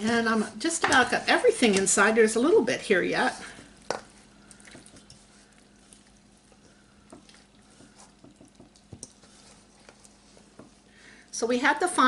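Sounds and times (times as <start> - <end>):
wet squishing: 3.4 - 10.9.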